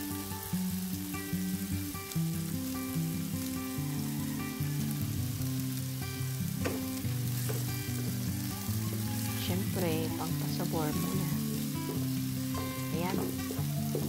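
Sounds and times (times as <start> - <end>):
background music: 0.0 - 14.0
vegetables sizzling in a frying pan: 0.0 - 14.0
wooden spatula stirring: 6.6 - 14.0.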